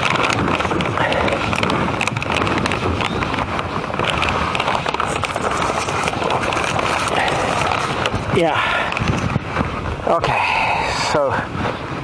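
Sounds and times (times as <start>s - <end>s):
stones knocking and scraping: 0.0s - 9.4s
steady rushing noise: 0.0s - 12.0s.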